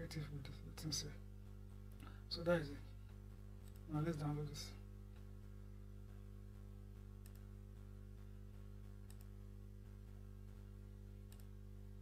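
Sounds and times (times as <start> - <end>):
steady low hum: 0.0 - 12.0
computer mouse clicking: 3.6 - 3.9, 7.2 - 7.6, 9.0 - 9.4, 11.3 - 11.6.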